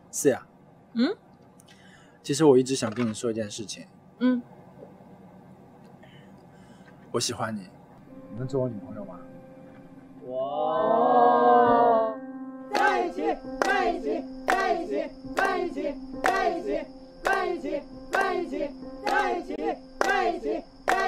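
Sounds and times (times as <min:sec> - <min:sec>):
group saying wow: 0:10.2 - 0:12.2
group chanting: 0:10.3 - 0:21.0
rhythmic clapping: 0:12.7 - 0:21.0.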